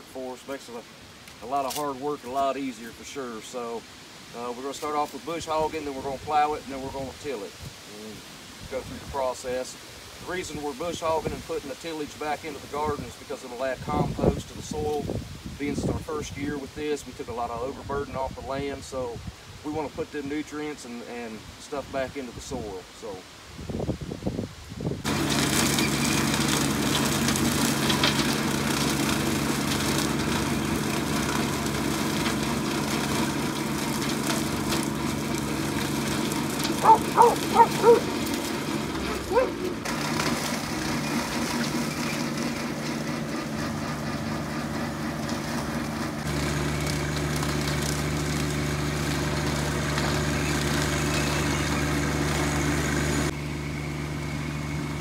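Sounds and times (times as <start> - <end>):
tractor diesel engine running: 25.0 - 55.0.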